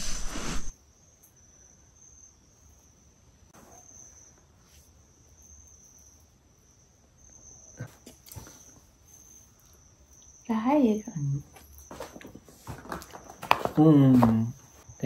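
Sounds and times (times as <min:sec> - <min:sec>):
crickets chirring: 0:00.0 - 0:15.0.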